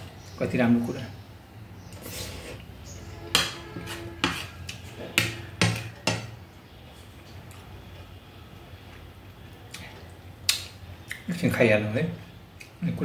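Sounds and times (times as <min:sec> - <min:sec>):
metal spoon scraping ceramic plate: 0:02.0 - 0:06.3.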